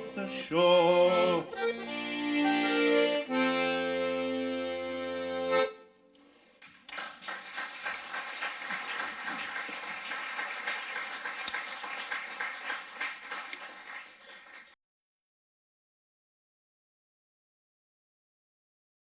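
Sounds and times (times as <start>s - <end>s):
accordion chord: 0.0s - 6.0s
audience applauding: 6.6s - 14.8s.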